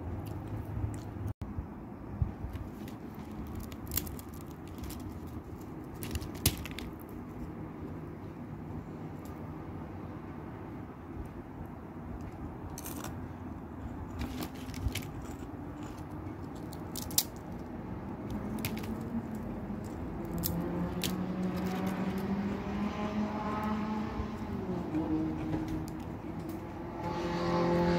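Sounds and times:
fried leaves crackling: 0:02.5 - 0:07.2
low engine hum: 0:17.5 - 0:27.9.

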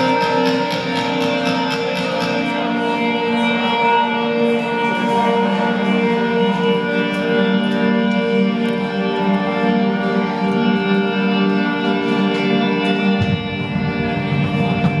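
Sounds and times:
electric guitar chords: 0:00.0 - 0:15.0
drum kit: 0:13.2 - 0:15.0.

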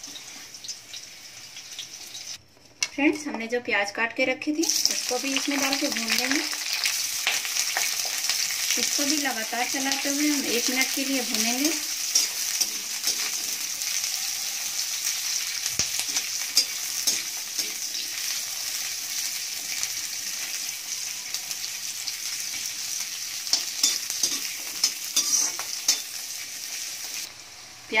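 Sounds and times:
onions sizzling in oil: 0:00.0 - 0:02.4, 0:04.6 - 0:28.0
metal spatula scraping pan: 0:11.6 - 0:14.2, 0:15.0 - 0:18.4, 0:23.5 - 0:26.2.

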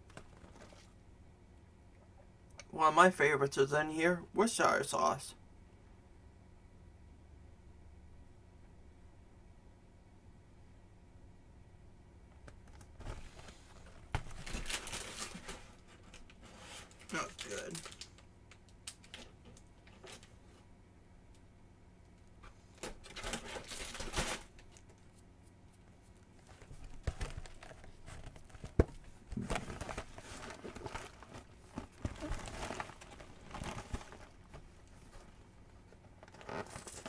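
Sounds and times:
plastic packaging crinkling and tearing: 0:13.0 - 0:18.2, 0:22.8 - 0:24.8, 0:29.4 - 0:35.3, 0:36.1 - 0:37.0.

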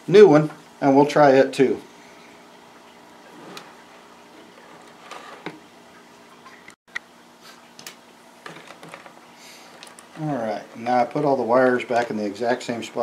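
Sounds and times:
plastic parts clicking and knocking: 0:07.8 - 0:10.2.

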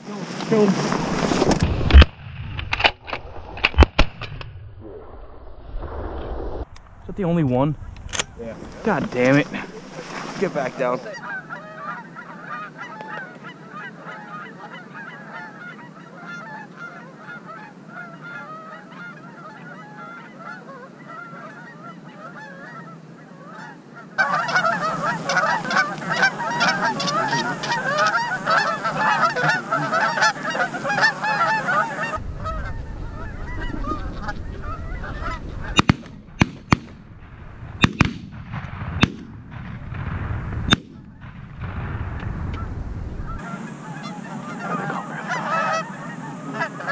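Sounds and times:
wind rumble on microphone: 0:00.8 - 0:10.4, 0:32.1 - 0:43.4
geese honking: 0:08.2 - 0:36.9, 0:42.5 - 0:46.9
sharp loud cracks: 0:35.7 - 0:42.7.

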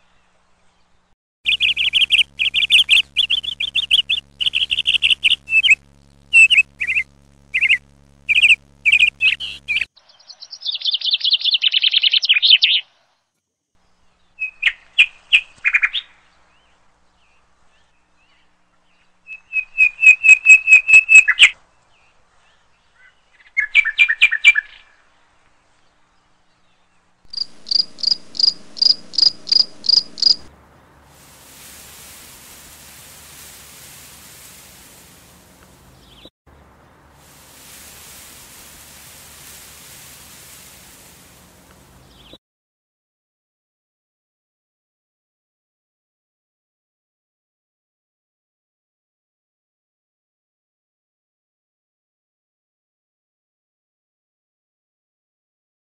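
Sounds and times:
birds chirping and trilling: 0:00.0 - 0:13.1, 0:26.0 - 0:31.0, 0:31.9 - 0:36.3, 0:38.0 - 0:42.4
vehicle wind and road noise: 0:25.1 - 0:42.4.

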